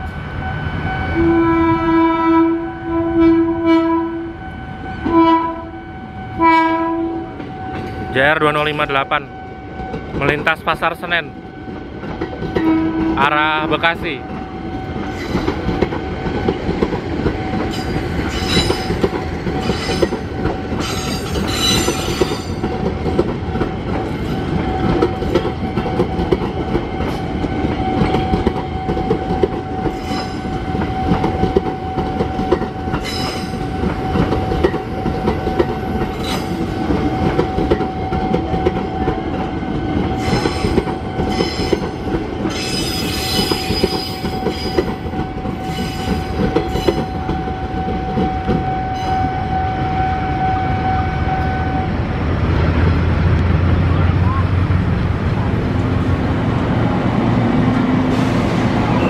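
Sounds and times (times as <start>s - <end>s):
train whine: 0.0s - 59.0s
train wheels rumbling on rails: 3.2s - 59.0s
high-pitched wheel squeals: 29.9s - 31.1s, 42.5s - 45.0s.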